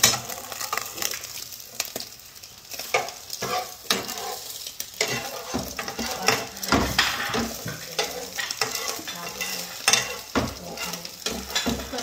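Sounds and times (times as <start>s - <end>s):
egg sizzling in a frying pan: 0.0s - 12.0s
metal spatula scraping a pan: 2.7s - 12.0s.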